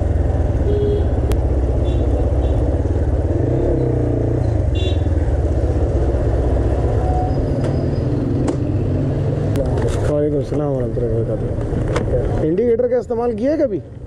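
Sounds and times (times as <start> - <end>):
motorcycle engine at low revs: 0.0 - 7.0.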